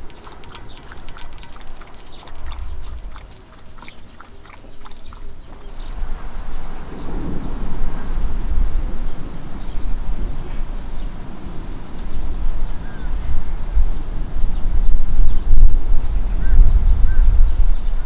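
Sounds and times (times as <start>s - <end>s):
dog eating from metal bowl: 0.0s - 5.9s
rolling thunder rumble: 5.9s - 17.9s.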